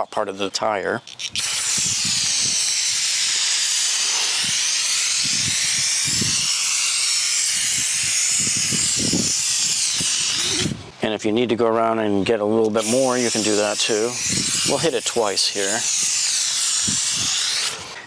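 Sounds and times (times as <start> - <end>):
aerosol spray hissing: 1.3 - 10.8, 12.8 - 18.0.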